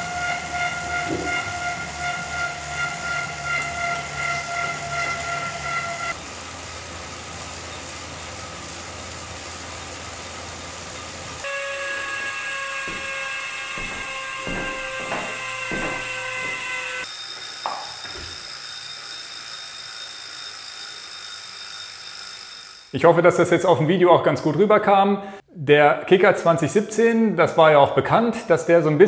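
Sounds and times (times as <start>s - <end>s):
flywheel wind noise: 0.0s - 13.9s, 17.0s - 22.9s
bicycle chain and drivetrain: 0.0s - 23.0s
bike trainer high-pitched whine: 0.0s - 23.0s
short knocks: 11.8s - 17.0s.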